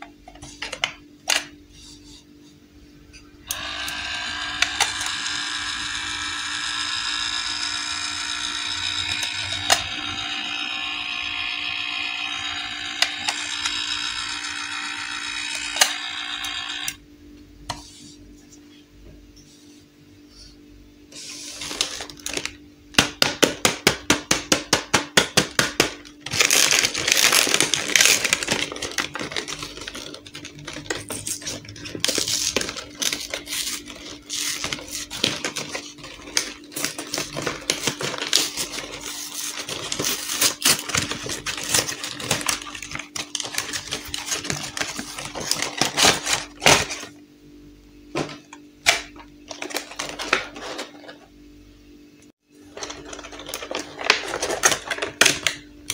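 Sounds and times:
cardboard and plastic crackling: 25.7 - 47.1, 48.2 - 51.2, 52.7 - 55.9.

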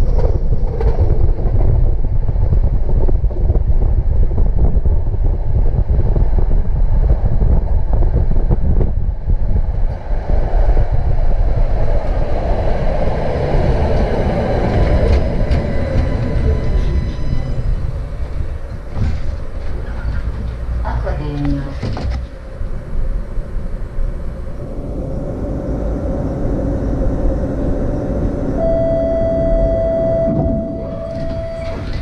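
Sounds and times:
tram rumbling on track: 0.0 - 32.0
high whine with faint tones: 16.4 - 32.0.

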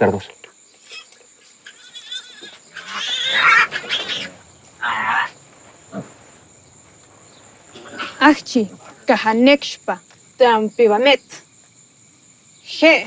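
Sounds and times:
pigs squealing: 0.8 - 6.2, 7.7 - 8.3.

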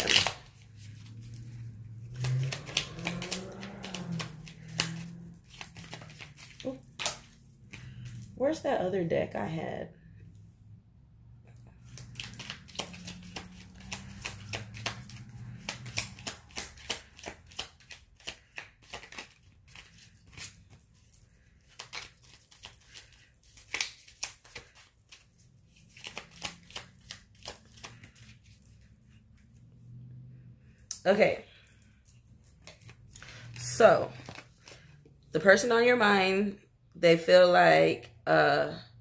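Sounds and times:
cards being shuffled: 0.0 - 8.4, 11.8 - 29.5, 30.9 - 35.0.

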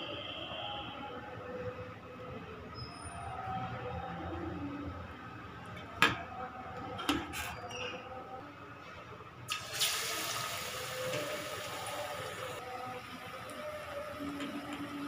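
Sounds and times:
battered food sizzling in hot oil: 9.5 - 15.0.

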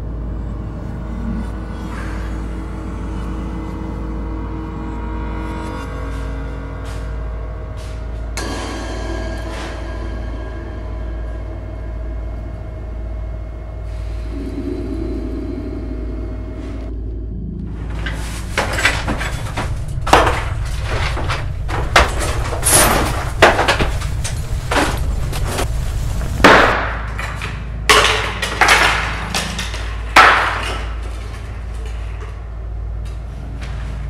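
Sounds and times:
steady low hum: 0.0 - 34.0
hard objects clattering and banging: 17.8 - 33.2.

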